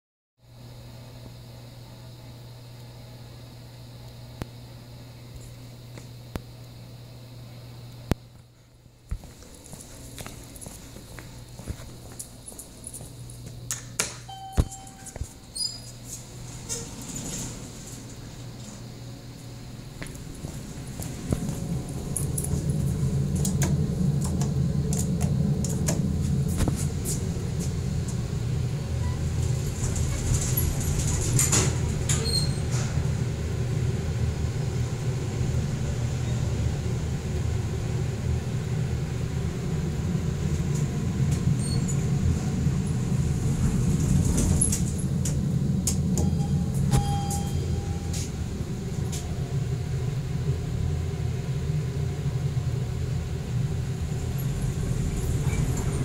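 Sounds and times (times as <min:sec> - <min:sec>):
brief beep: 0:14.3 - 0:15.2, 0:46.2 - 0:48.3
elevator cab rumble: 0:14.3 - 0:56.0.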